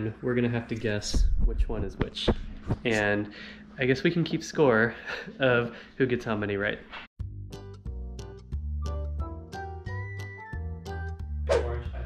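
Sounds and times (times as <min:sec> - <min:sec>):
upbeat background music: 0:07.2 - 0:12.0.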